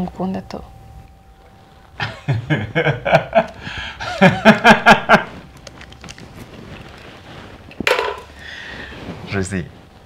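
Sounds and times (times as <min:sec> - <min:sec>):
man laughing hard: 0:02.0 - 0:05.4.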